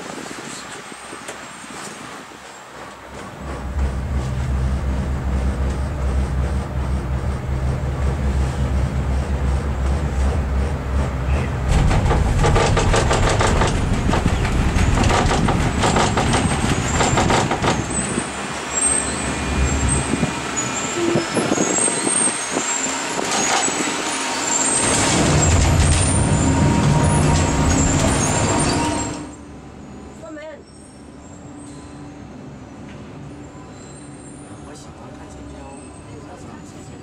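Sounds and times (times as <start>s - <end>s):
low rumble: 3.4s - 17.5s
cable car cabin rattling clicks: 11.2s - 18.4s
short high squeaks: 16.5s - 29.4s, 33.6s - 34.6s.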